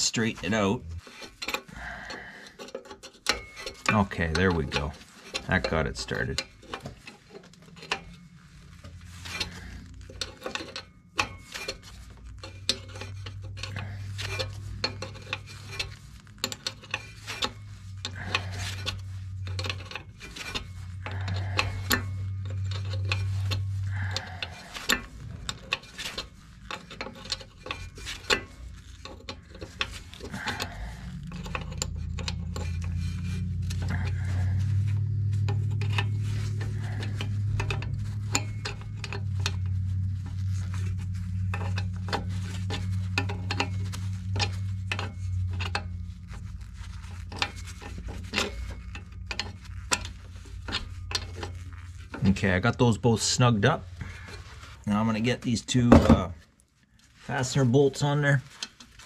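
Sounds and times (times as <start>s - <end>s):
wrench clinking on metal fittings: 0.0s - 8.2s
low steady hum: 0.0s - 59.0s.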